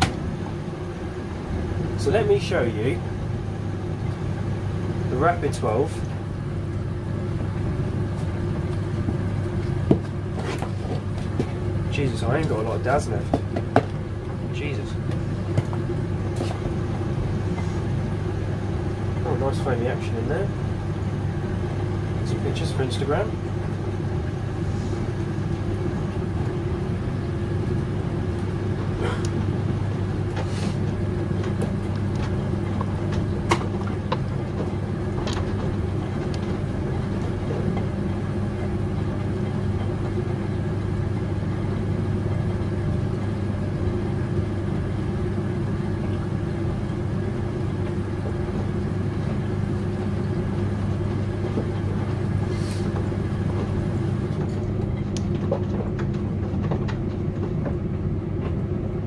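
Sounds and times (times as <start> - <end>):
washing machine drum tumbling: 0.0 - 2.1, 23.2 - 59.0
motor hum: 0.0 - 59.0.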